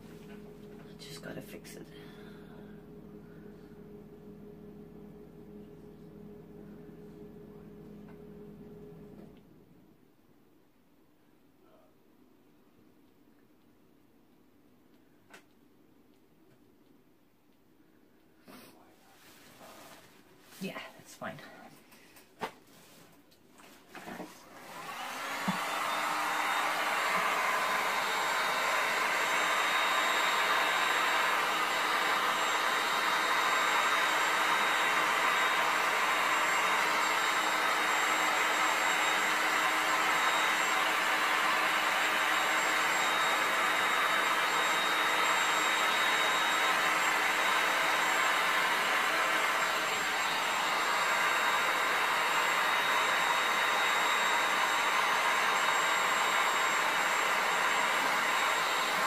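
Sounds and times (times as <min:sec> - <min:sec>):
faint steady whine: 0:00.0 - 0:13.3
heat gun blowing air: 0:24.4 - 0:59.0.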